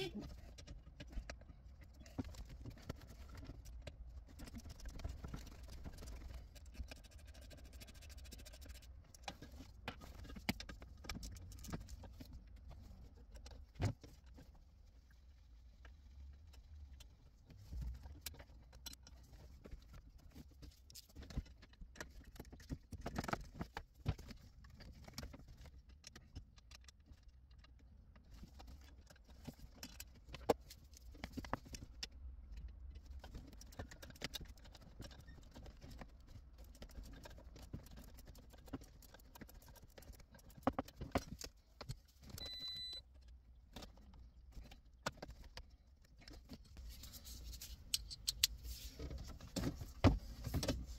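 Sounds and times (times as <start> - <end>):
short electronic beep: 42.4 - 43.0.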